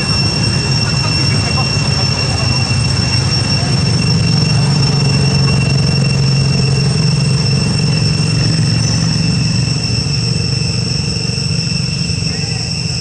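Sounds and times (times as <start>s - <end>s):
high-pitched insect whine: 0.0s - 13.0s
loud low rumble: 0.0s - 13.0s.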